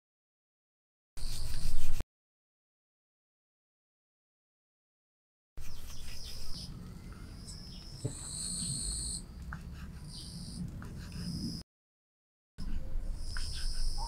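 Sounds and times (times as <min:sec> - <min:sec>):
crickets chirping: 0:07.0 - 0:09.3.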